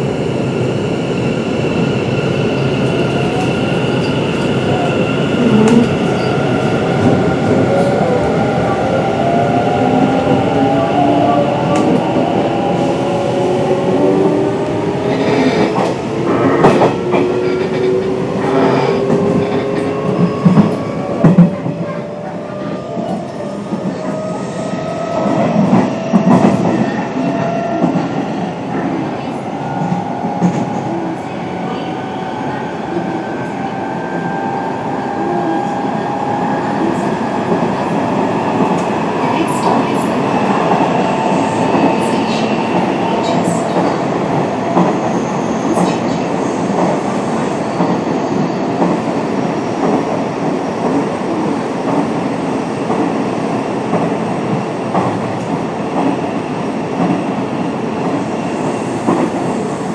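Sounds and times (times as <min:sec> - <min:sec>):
rail clicks: 0:38.5 - 0:51.2.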